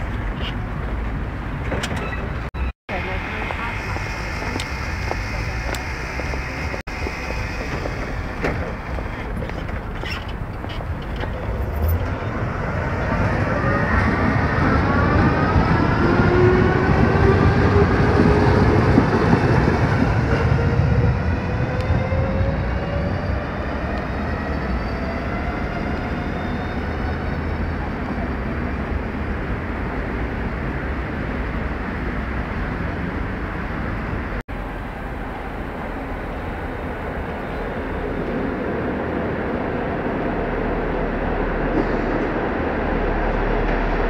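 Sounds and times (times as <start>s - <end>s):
tram wheels rumbling on rails: 0.0s - 44.0s
tram motors whining: 1.7s - 29.1s.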